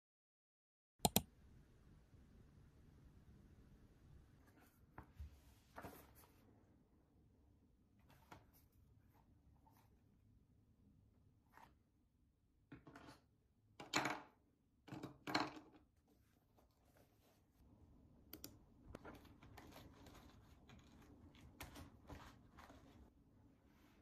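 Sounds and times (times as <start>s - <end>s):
mouse click: 1.0s - 1.3s, 18.3s - 18.6s
soft typing on laptop keyboard: 18.3s - 22.8s.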